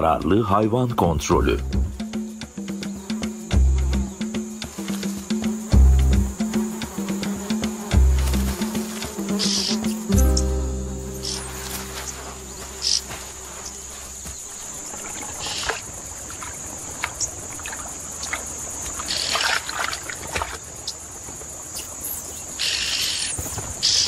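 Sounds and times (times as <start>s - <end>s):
insect chorus drone: 0.0s - 24.0s
low sustained music tone: 10.1s - 14.2s.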